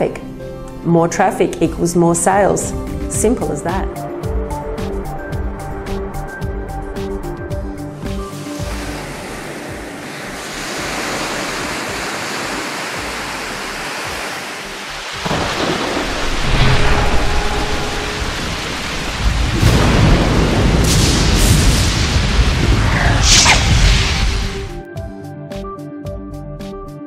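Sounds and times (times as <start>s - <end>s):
rain hiss: 8.1s - 24.8s
thunder rumbling: 15.1s - 24.8s.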